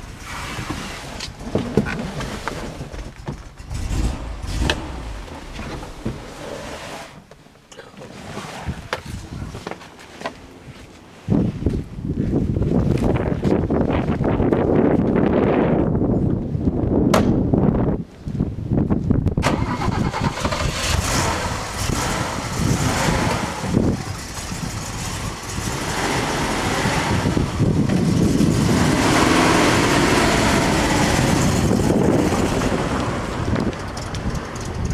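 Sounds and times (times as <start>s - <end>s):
car engine starting and running: 0.0s - 9.2s, 19.3s - 34.9s.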